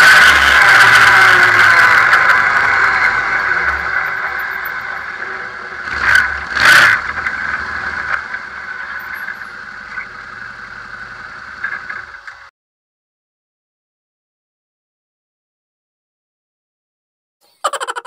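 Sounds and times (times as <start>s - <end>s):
vehicle engine and drivetrain drone: 0.0s - 12.5s.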